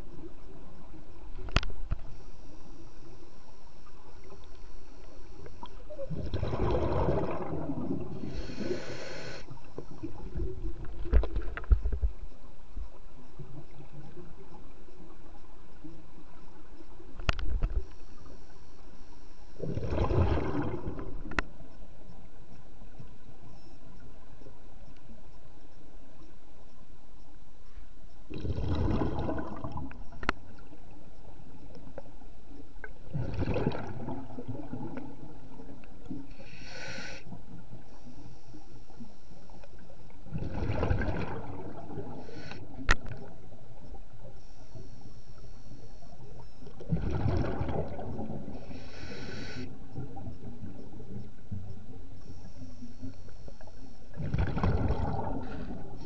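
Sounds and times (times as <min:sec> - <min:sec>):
exhaled bubbles underwater: 0:03.8 - 0:12.2, 0:19.6 - 0:21.6, 0:28.3 - 0:30.8, 0:32.8 - 0:36.4, 0:37.3 - 0:44.9, 0:46.1 - 0:56.0
regulator hiss: 0:08.1 - 0:10.0, 0:36.3 - 0:39.7, 0:42.1 - 0:42.9, 0:48.5 - 0:50.0.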